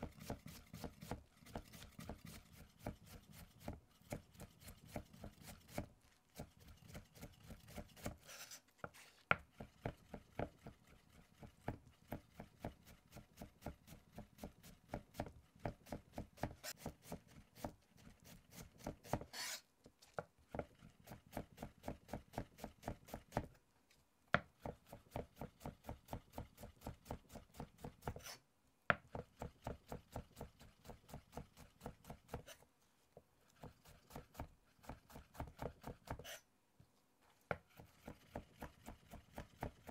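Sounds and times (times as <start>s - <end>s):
knife chopping on cutting board: 0.0s - 8.2s, 11.6s - 19.6s, 33.6s - 36.4s.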